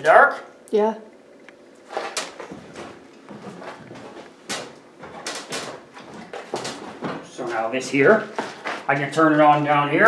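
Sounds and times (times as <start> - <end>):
footsteps on wooden stairs: 1.8 - 9.8
shuffling: 1.8 - 9.8.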